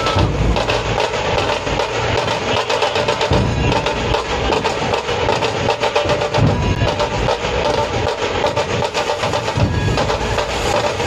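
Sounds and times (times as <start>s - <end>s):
dhol drums playing fast rhythm: 0.0s - 11.0s.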